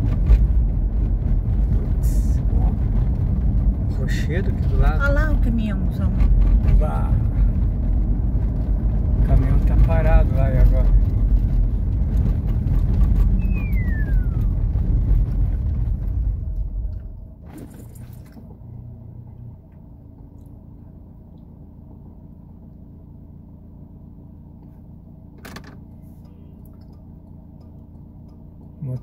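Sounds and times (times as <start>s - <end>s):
car engine and road rumble: 0.0s - 29.0s
engine idle hum: 0.0s - 29.0s
short falling whistle: 13.4s - 14.6s.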